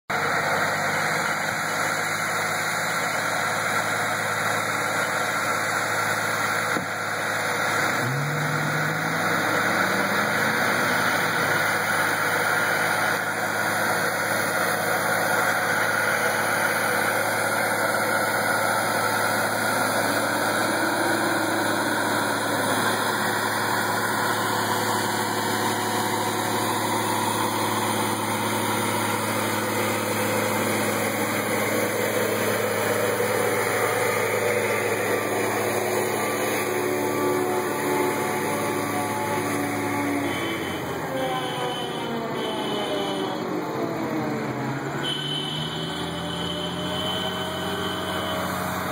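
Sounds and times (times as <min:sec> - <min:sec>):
heavy vehicle engines running: 0:00.1 - 0:48.9.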